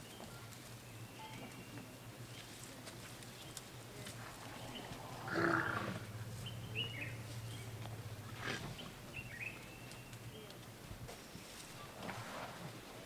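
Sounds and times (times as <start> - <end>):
faint bird chirps: 0.0 - 2.5
low hum: 0.4 - 13.0
elephant breathy call: 4.2 - 6.9.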